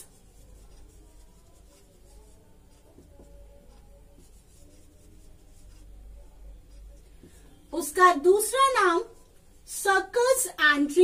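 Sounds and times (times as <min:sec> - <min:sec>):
marker writing on whiteboard: 0:00.0 - 0:09.8.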